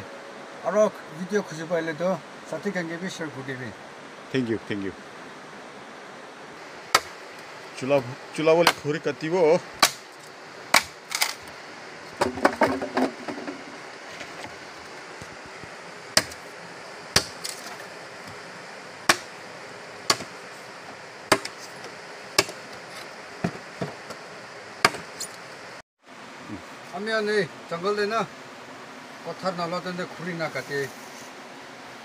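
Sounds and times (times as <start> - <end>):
machete chopping wood: 6.9 - 7.2, 8.6 - 8.8, 9.8 - 10.0, 10.7 - 11.4, 16.2 - 16.4, 17.2 - 17.8, 19.1 - 19.3, 20.1 - 20.4, 21.3 - 21.7, 22.4 - 22.6, 24.8 - 25.2.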